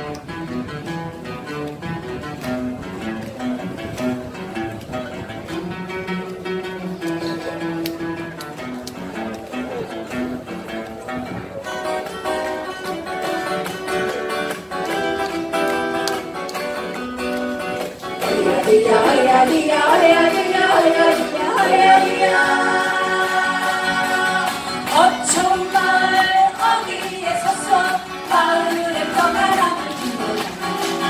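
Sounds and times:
acoustic guitars playing: 0.0s - 31.0s
person singing: 18.2s - 31.0s.

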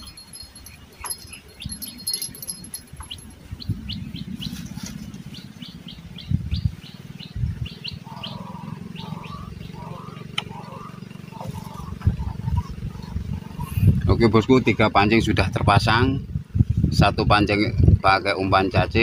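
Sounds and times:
bird chirping: 0.0s - 14.0s.

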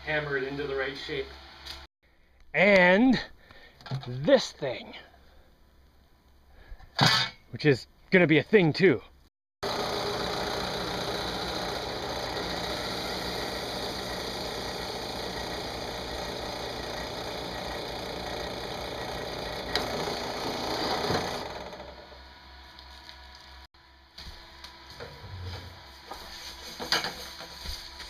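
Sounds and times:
drill press motor hum: 9.6s - 22.4s
hole saw cutting plastic pipe: 9.7s - 22.0s.

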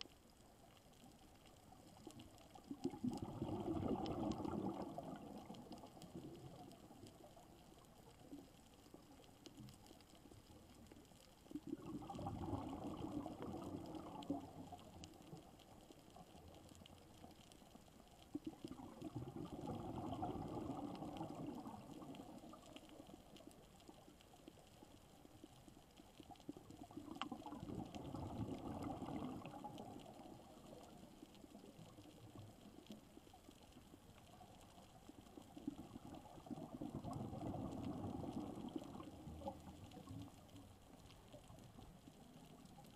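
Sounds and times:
faint underwater hiss: 0.0s - 42.9s
air bubbling underwater: 2.9s - 5.7s, 11.7s - 14.2s, 27.4s - 29.8s.

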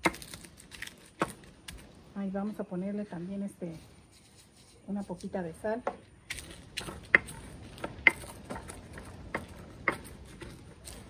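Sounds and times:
gritty grinding: 6.3s - 11.0s.

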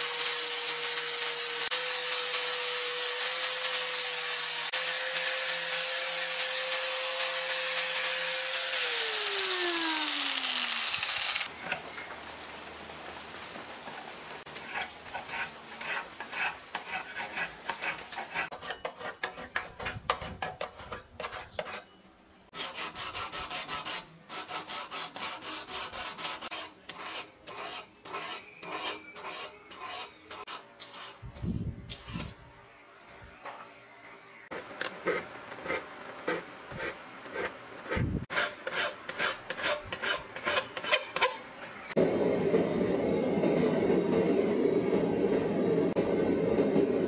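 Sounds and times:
angle grinder grinding steel: 0.0s - 11.5s
hand file strokes on blade: 14.6s - 22.0s, 22.6s - 31.3s, 31.9s - 32.4s, 34.5s - 41.4s.

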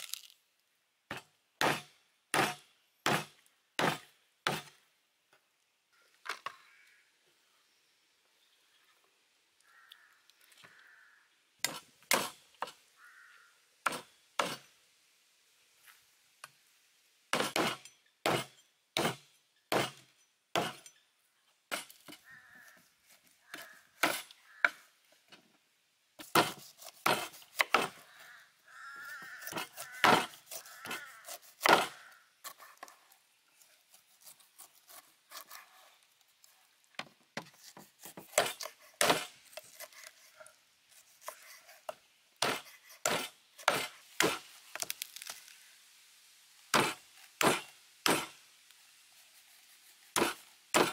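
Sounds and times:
cleaver chopping bone on wood: 26.2s - 28.0s, 29.3s - 32.0s, 37.4s - 39.3s, 46.7s - 48.3s, 50.2s - 50.9s.

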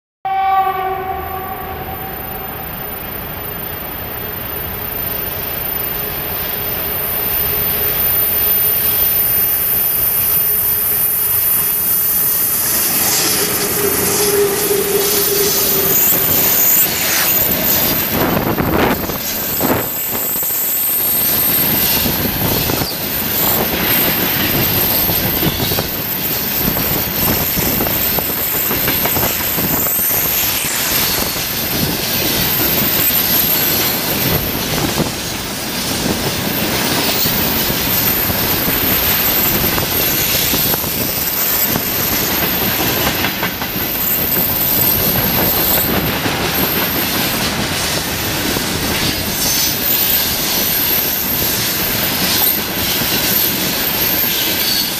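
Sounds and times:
train horn: 0.3s - 3.0s, 12.4s - 19.8s
electric locomotives running: 0.3s - 54.9s.

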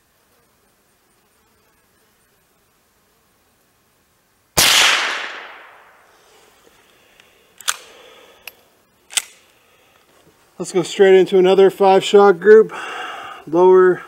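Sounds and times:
rifle shot with echo: 4.6s - 6.1s
rifle pump action clicks: 7.6s - 9.4s.

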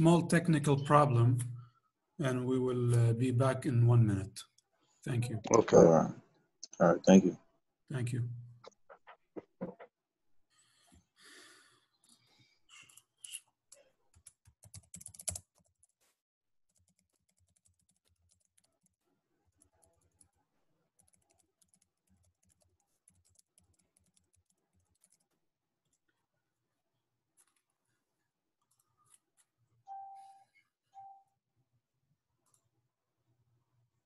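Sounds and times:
computer keyboard typing: 14.1s - 15.9s, 16.7s - 19.0s, 21.0s - 26.0s.

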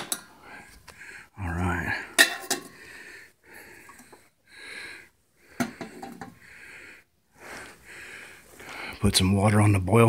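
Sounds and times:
slow breathing: 0.1s - 9.0s
pot clinking on metal stand: 2.2s - 2.7s.

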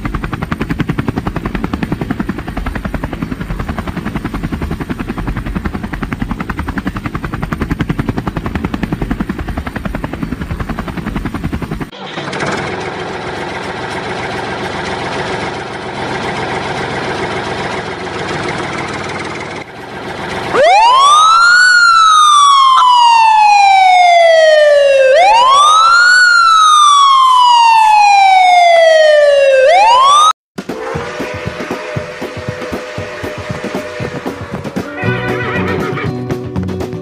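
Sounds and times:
engine rumble: 0.0s - 21.1s
wailing siren: 19.8s - 36.0s.

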